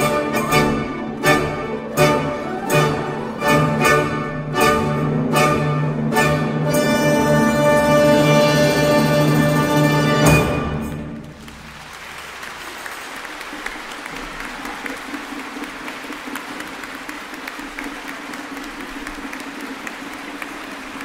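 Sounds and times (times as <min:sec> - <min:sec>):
audience applauding: 0:00.0 - 0:04.7, 0:09.3 - 0:21.0.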